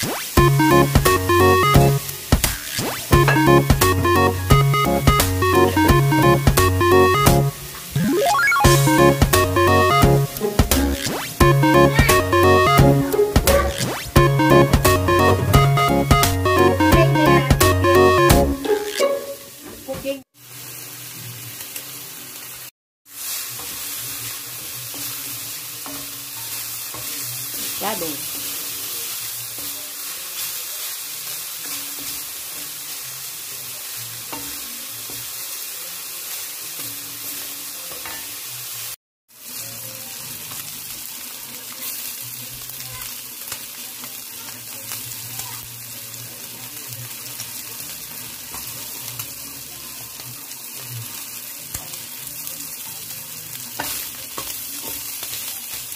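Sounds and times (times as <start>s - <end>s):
meat sizzling in a skillet: 0.0s - 4.0s, 10.1s - 12.1s, 18.4s - 55.9s.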